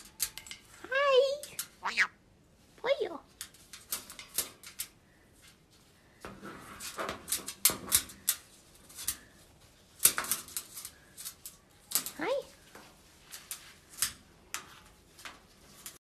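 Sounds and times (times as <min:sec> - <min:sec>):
bird scratching and rustling: 0:03.2 - 0:16.0.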